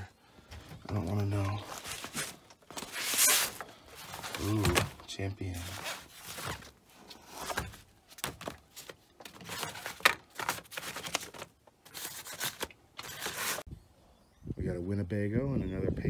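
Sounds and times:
paper rustling and flapping: 0:00.4 - 0:13.7.

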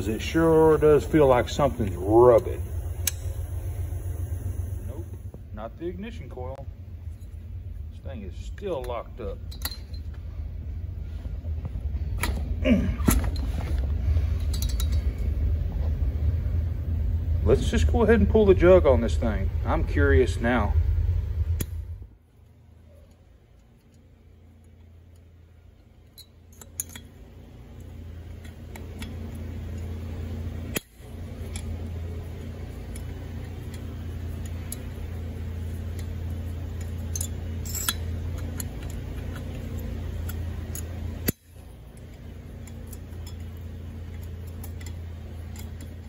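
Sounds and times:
power driver motor hum: 0:00.0 - 0:06.5.

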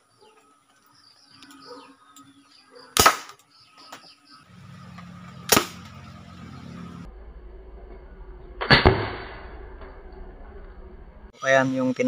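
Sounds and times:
toy gun firing pop: 0:03.0 - 0:03.4
sharp crack: 0:03.0 - 0:03.5, 0:05.4 - 0:06.0, 0:08.6 - 0:10.0
steady low hum: 0:04.4 - 0:11.9.

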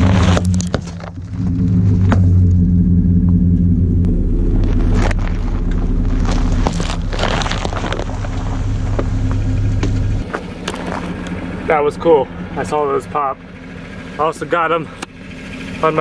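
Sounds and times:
tyres rolling over gravel: 0:00.0 - 0:02.6, 0:04.1 - 0:13.2
truck engine running: 0:00.0 - 0:16.0.

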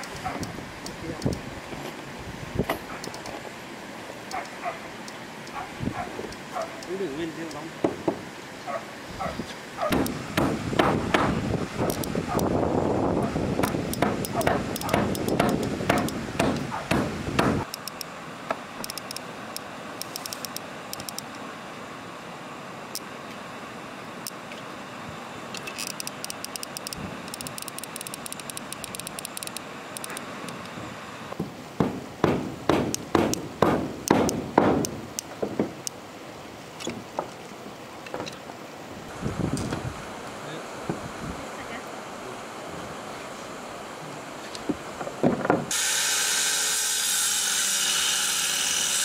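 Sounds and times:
sharp knocking strikes: 0:07.8 - 0:08.2, 0:09.9 - 0:11.4, 0:13.6 - 0:17.7, 0:31.4 - 0:35.8.

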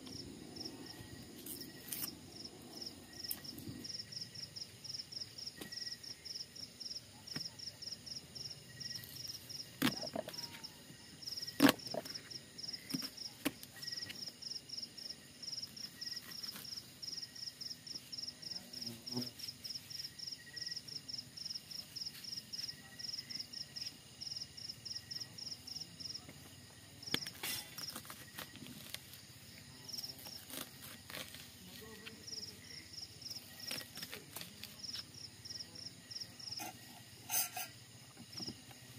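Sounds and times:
insects chirping: 0:00.0 - 0:38.9.

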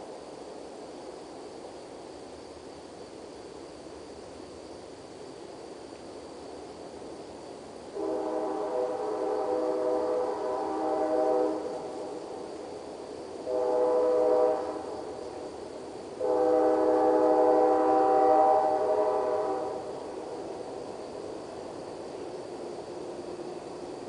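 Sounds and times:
train horn blasts: 0:08.0 - 0:11.9, 0:13.4 - 0:15.0, 0:16.2 - 0:19.9.

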